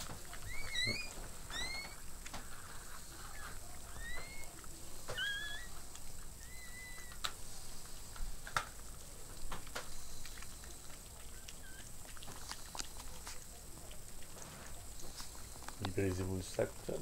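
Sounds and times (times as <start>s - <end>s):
puppy squeaking: 0.2s - 2.1s, 3.3s - 7.3s, 11.2s - 12.0s
dog licking wet clicks: 7.1s - 17.0s.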